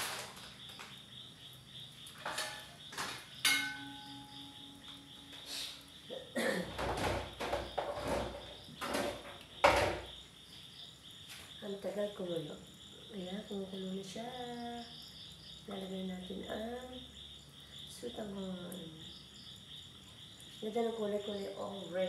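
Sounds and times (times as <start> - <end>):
high insect chirping: 0.0 - 22.0
knocks and clatters: 2.1 - 4.2, 6.6 - 10.2.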